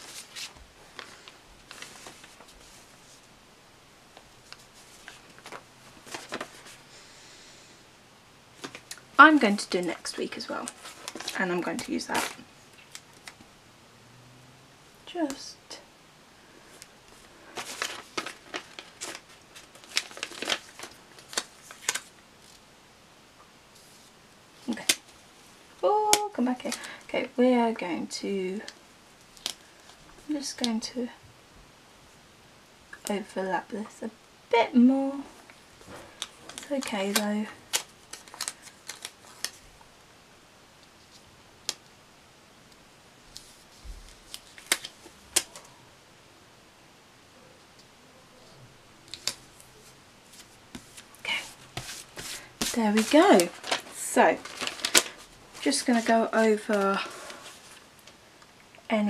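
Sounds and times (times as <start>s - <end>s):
paper sticker sheet rustling: 0.0s - 3.2s, 4.4s - 6.8s, 17.1s - 22.6s, 35.8s - 39.6s, 49.1s - 57.9s.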